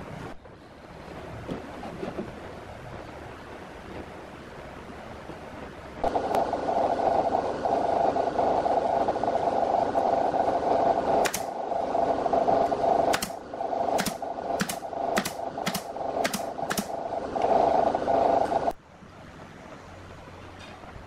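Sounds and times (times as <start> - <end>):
mechanical hum: 0.0 - 21.0
nail gun firing: 11.2 - 11.5, 13.1 - 13.4, 14.0 - 16.9.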